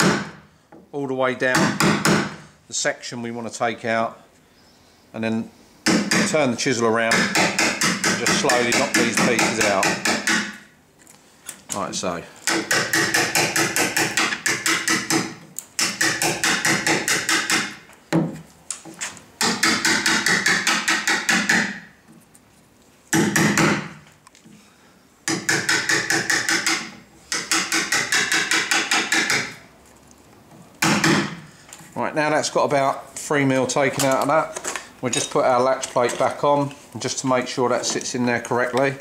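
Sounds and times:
hammer tapping chisel into wood: 7.1 - 10.6, 12.5 - 18.4, 19.4 - 21.8, 25.3 - 29.6.

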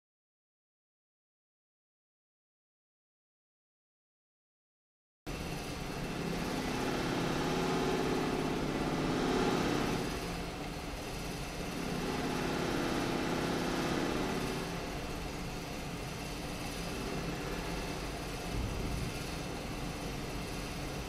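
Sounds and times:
mechanical hum with hiss: 5.3 - 21.0.

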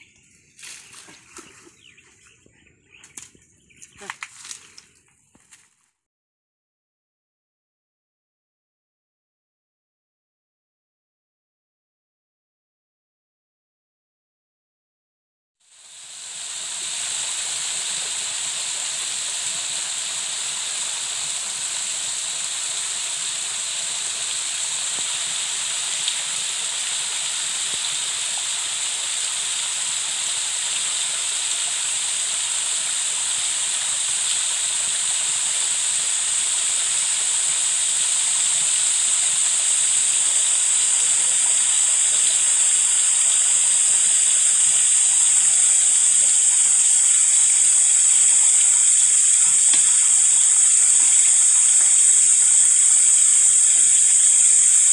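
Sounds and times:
high-pitched outdoor hiss: 0.0 - 5.7, 15.7 - 54.9.

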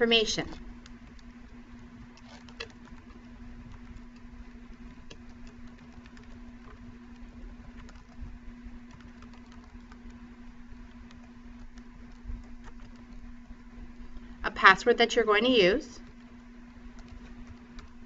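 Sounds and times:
low electrical hum: 0.0 - 18.0
keyboard clicks: 2.2 - 8.2, 8.8 - 10.2.

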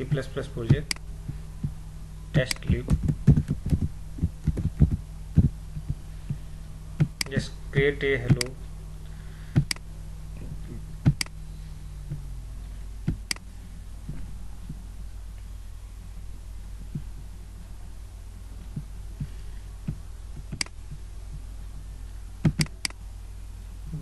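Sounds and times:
steady low hum: 0.0 - 24.0
computer mouse clicks: 22.5 - 23.0.

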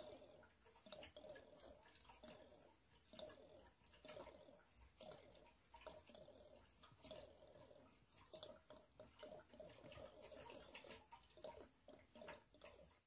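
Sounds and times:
water trickling into plastic tray: 0.0 - 13.0.

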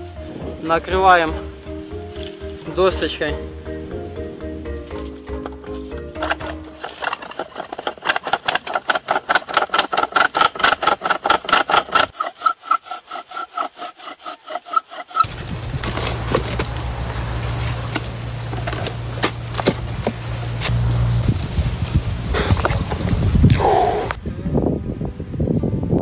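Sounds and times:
low hum with rushing noise: 15.3 - 26.0.

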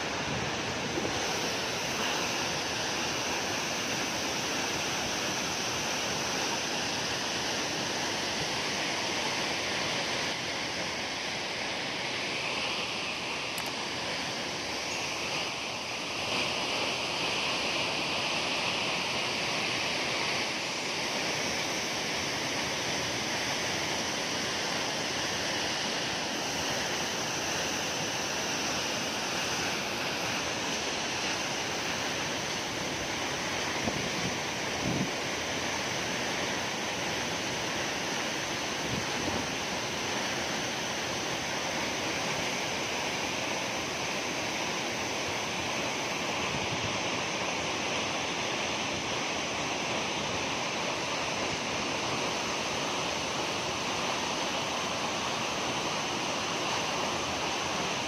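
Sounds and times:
waterfall rushing onto boulders: 0.0 - 58.0.

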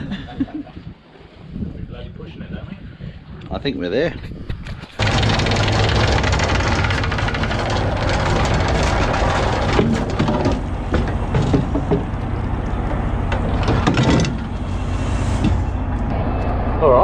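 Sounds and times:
anchor chain rattling: 4.8 - 12.2
boat diesel engine droning: 5.0 - 17.0.

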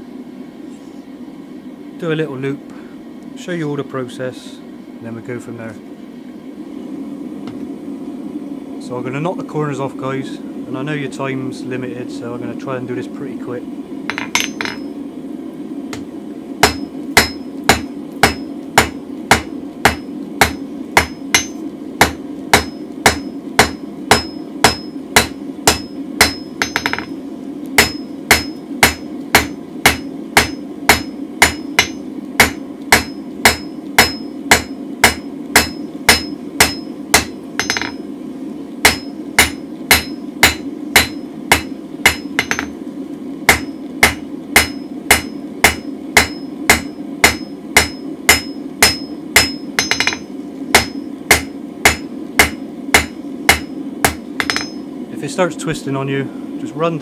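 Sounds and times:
gas forge roaring: 0.0 - 57.0
hammer ringing on anvil: 14.1 - 14.9, 16.6 - 27.1, 27.8 - 38.0, 38.9 - 42.8, 43.5 - 54.8.

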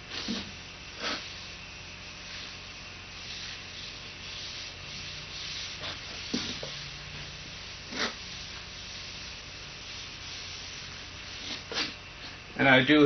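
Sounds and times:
cloth rubbing on metal panel: 3.2 - 12.0.

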